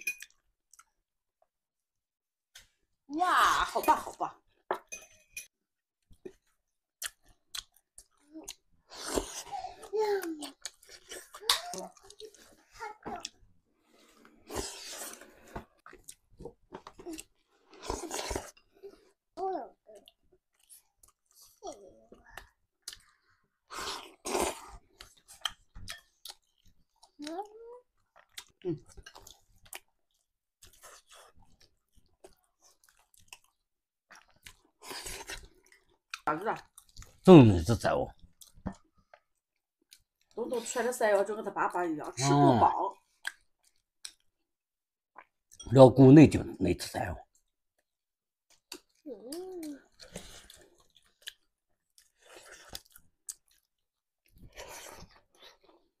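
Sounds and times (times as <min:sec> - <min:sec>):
person chewing food: 0:00.2 - 0:01.0, 0:06.0 - 0:19.3, 0:20.0 - 0:27.4, 0:28.0 - 0:37.2, 0:38.2 - 0:40.4, 0:43.0 - 0:44.4, 0:45.2 - 0:45.6, 0:47.3 - 0:56.0.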